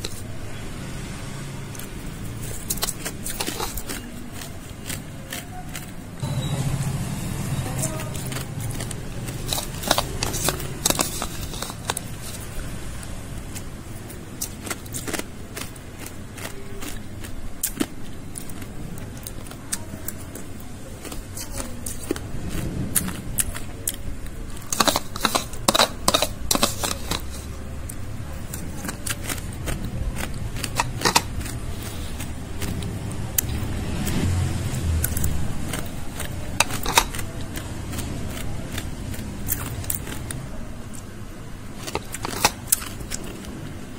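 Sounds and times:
ice crunching and cracking: 2.4 - 5.9, 8.1 - 12.5, 41.8 - 43.6.

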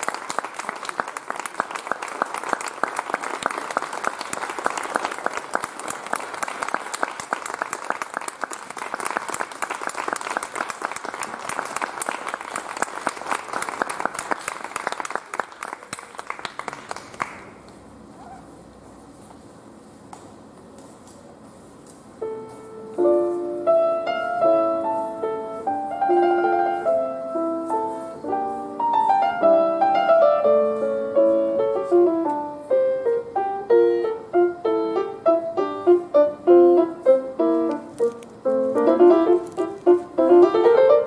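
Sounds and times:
audience applauding: 0.0 - 17.6.

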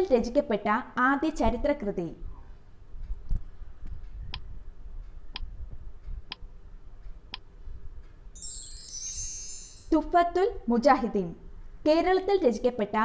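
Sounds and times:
sharp timer ticks: 4.1 - 8.1
bright shimmering chime sweep: 8.4 - 10.0.

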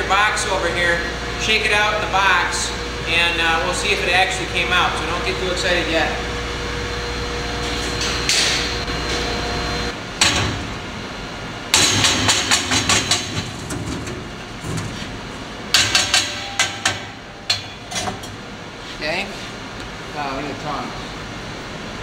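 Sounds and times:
steady shop hum: 0.0 - 22.0
metal knocks and bangs: 11.7 - 18.4.

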